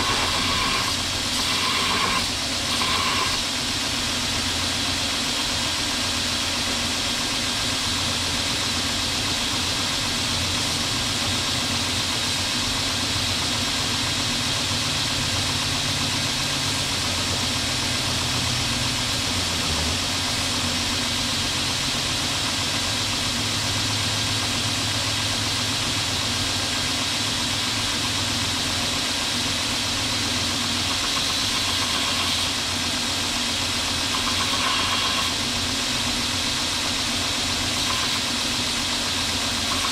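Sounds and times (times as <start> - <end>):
belt grinder grinding steel: 0.0 - 3.6, 30.2 - 32.8, 33.4 - 36.3, 37.2 - 39.9
low motor hum: 0.0 - 39.9.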